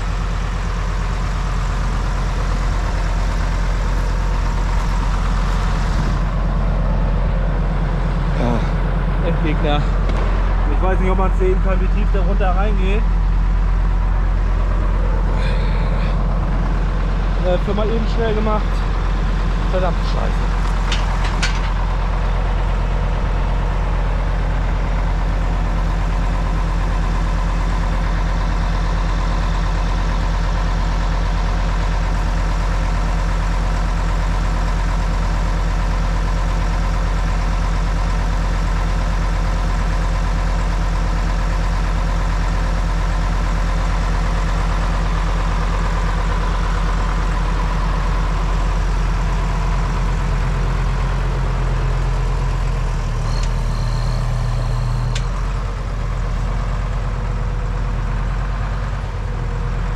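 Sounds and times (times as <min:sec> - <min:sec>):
diesel tractor engine idling: 0:00.0 - 0:59.9.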